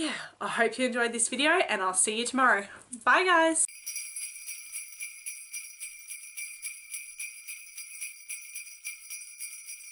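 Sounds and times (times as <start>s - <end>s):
jingle bells shaken: 3.7s - 9.9s.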